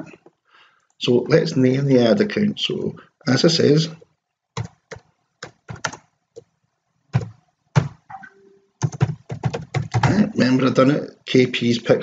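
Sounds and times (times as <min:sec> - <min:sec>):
typing on computer keyboard: 0:04.6 - 0:06.5, 0:07.1 - 0:08.0, 0:08.8 - 0:10.2.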